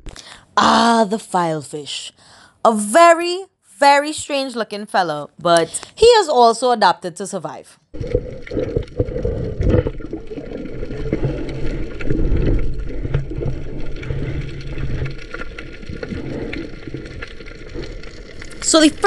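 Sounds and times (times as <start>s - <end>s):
muffled underwater water rumble: 8.0s - 19.0s.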